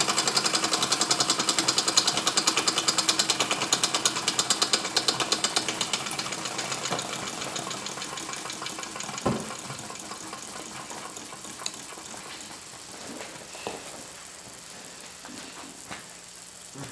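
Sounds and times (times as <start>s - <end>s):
steam engine exhaust puffs: 0.0s - 16.9s
steam hissing: 0.0s - 16.9s
knock: 9.2s - 9.5s.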